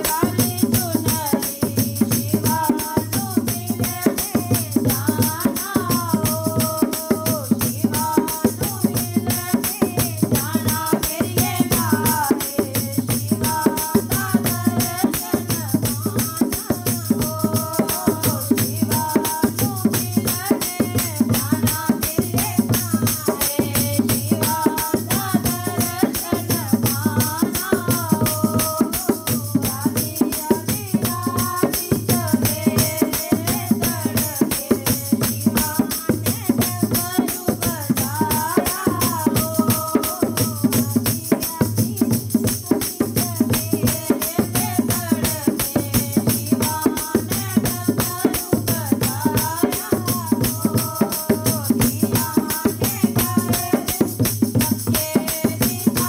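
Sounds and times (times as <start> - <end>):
jingling percussion: 0.0 - 56.0.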